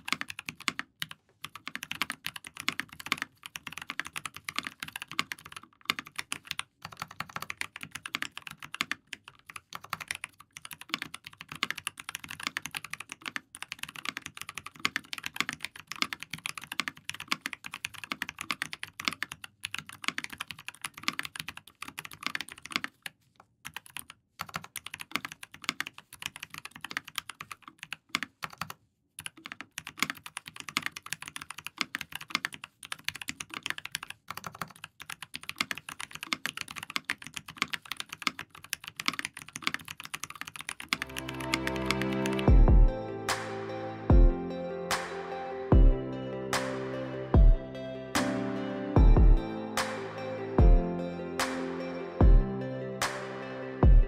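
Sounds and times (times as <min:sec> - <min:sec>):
mechanical keyboard typing: 0:00.0 - 0:42.5.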